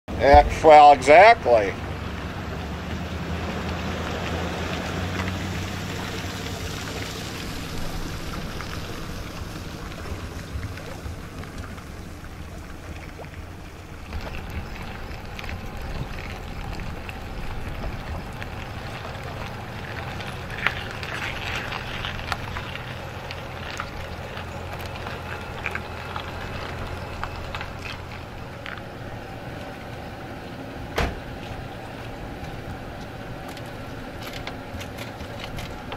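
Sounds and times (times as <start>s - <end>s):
engine idling: 0.1s - 35.9s
outboard motor idling: 0.1s - 35.9s
wind on microphone: 14.0s - 22.7s.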